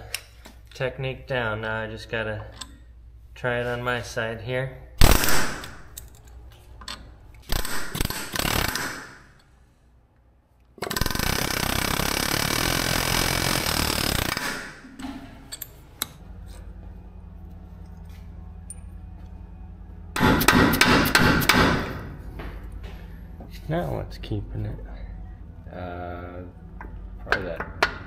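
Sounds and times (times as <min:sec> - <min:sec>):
low hum: 0:00.0 - 0:28.0
impact wrench hammering: 0:07.4 - 0:09.4, 0:10.8 - 0:16.1, 0:20.2 - 0:22.1, 0:27.3 - 0:28.0.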